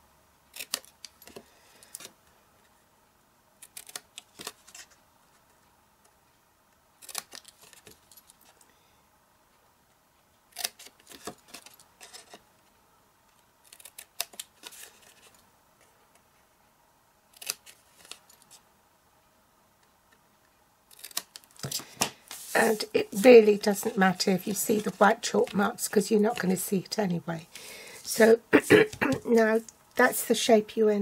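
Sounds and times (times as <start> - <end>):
scissors snipping cardstock: 0.5 - 1.4.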